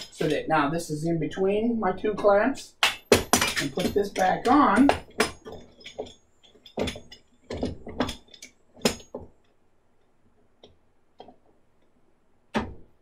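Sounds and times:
vise parts knocking on wooden bench: 0:04.9 - 0:09.3.

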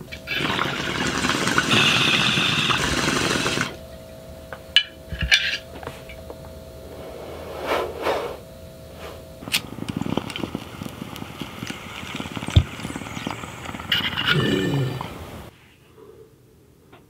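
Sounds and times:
bong bubbling: 0:00.2 - 0:03.8, 0:09.4 - 0:15.5.

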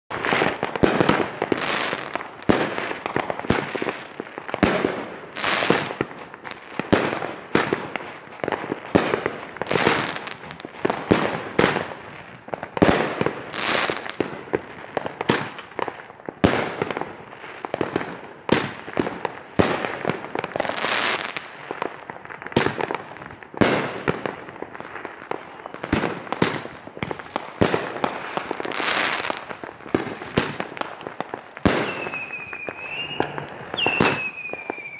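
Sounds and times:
firework bangs: 0:00.1 - 0:34.9
hissing and crackling stars: 0:00.1 - 0:34.9.

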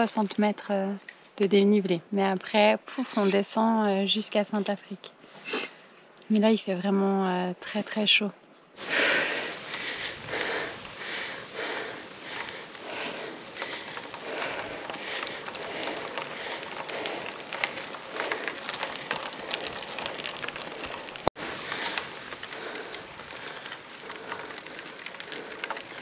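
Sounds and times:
bike tyres crackling on rough surface: 0:08.8 - 0:26.0.

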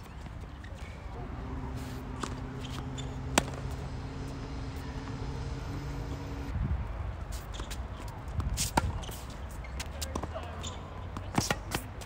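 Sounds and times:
tennis racket hitting ball: 0:01.2 - 0:06.3, 0:11.2 - 0:12.0
tennis ball bouncing: 0:01.2 - 0:06.4, 0:07.4 - 0:12.0
steady low hum: 0:01.2 - 0:06.9.

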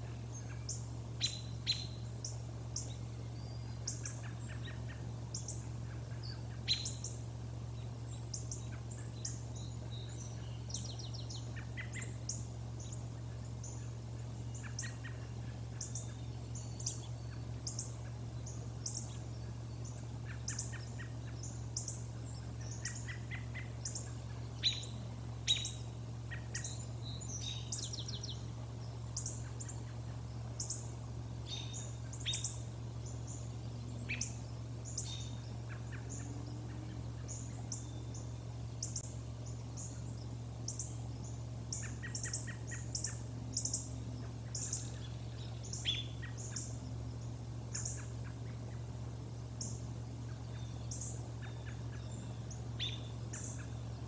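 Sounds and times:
small birds chirping: 0:00.0 - 0:54.0
steady low hum: 0:00.0 - 0:54.0.

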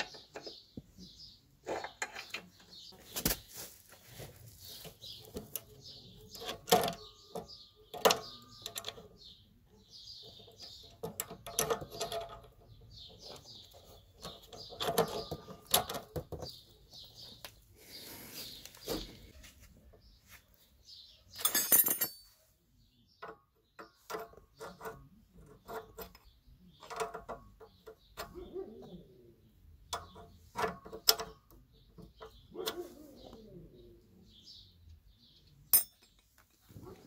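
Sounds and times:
birds chirping: 0:00.0 - 0:37.0
metal clicks and knocks: 0:01.6 - 0:02.9, 0:05.2 - 0:09.3, 0:10.2 - 0:16.7, 0:23.2 - 0:28.5, 0:29.8 - 0:32.8.

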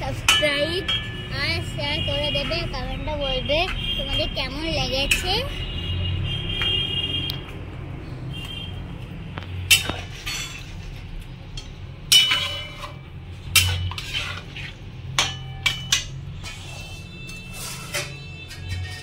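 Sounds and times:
metal spatula scraping pan: 0:09.7 - 0:19.0.

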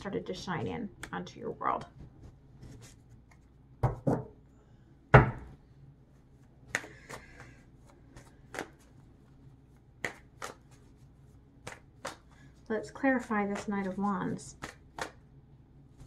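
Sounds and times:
cards knocking: 0:06.7 - 0:08.9, 0:10.0 - 0:10.8, 0:11.6 - 0:12.4, 0:13.4 - 0:15.2
cards snapping: 0:06.7 - 0:08.9, 0:10.0 - 0:10.8, 0:11.6 - 0:12.4, 0:14.5 - 0:15.2.

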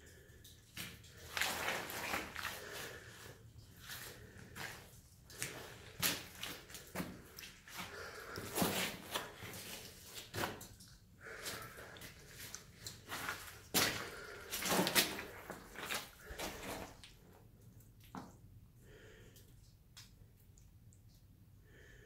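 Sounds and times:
footsteps splashing through mud: 0:00.8 - 0:03.1, 0:03.8 - 0:17.1.

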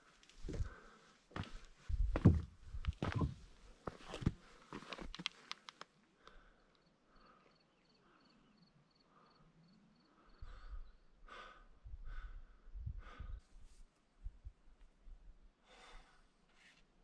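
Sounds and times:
person breathing: 0:00.4 - 0:01.7, 0:05.3 - 0:13.7, 0:15.6 - 0:16.7
footsteps on loose rock: 0:01.4 - 0:05.2.

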